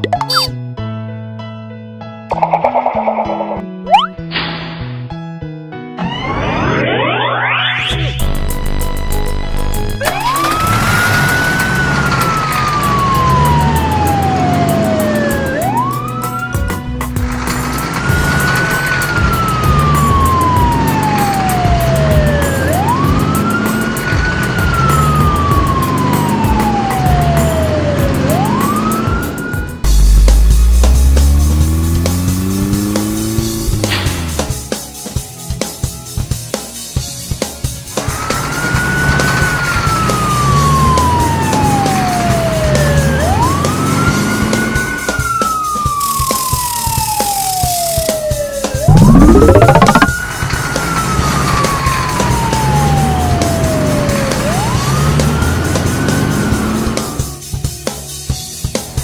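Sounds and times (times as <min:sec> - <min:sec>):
cartoon siren effect: 0:00.0 - 0:00.5, 0:02.3 - 0:04.1, 0:06.0 - 0:08.2, 0:48.6 - 0:50.2
cartoon siren wailing: 0:46.1 - 0:50.2, 0:51.7 - 0:55.4.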